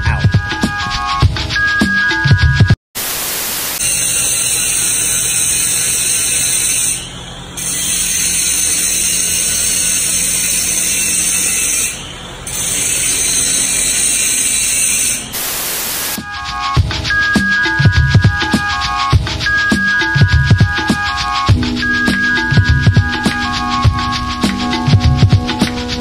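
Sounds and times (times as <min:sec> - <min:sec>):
static white noise bursts: 0:03.0 - 0:03.9, 0:15.3 - 0:17.0
steady high hiss: 0:03.0 - 0:07.7, 0:08.8 - 0:26.0.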